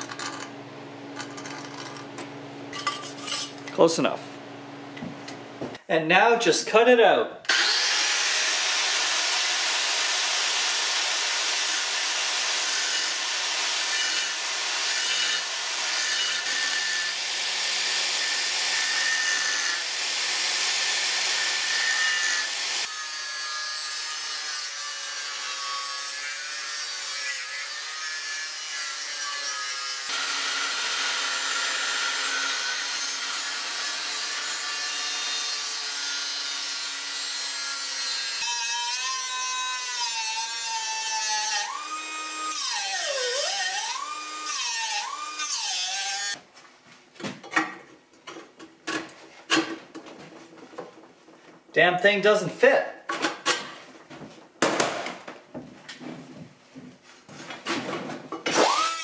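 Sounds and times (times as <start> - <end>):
angle grinder cutting steel: 7.5 - 46.4, 58.5 - 59.0.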